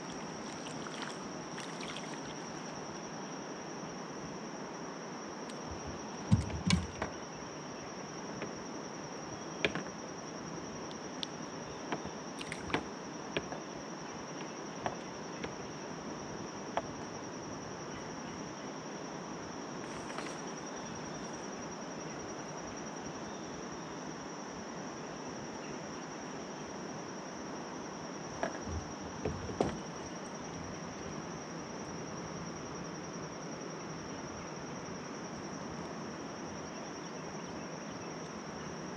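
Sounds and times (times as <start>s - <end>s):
insects droning: 0.0s - 38.9s
sharp clicks and knocks: 5.6s - 7.2s.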